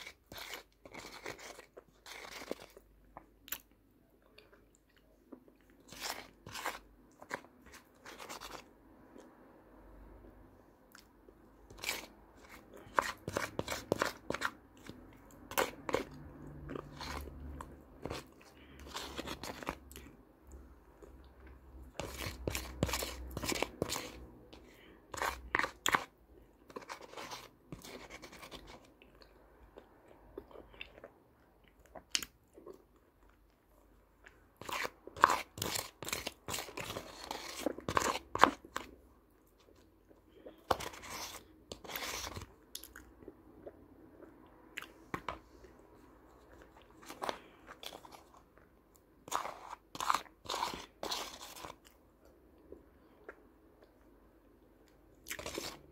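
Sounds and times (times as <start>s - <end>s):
plastic spoon scraping a tub: 0.0s - 2.8s, 5.9s - 8.7s, 11.7s - 19.8s, 22.0s - 28.9s, 34.6s - 38.9s, 40.6s - 42.5s, 49.2s - 51.8s, 55.4s - 55.9s.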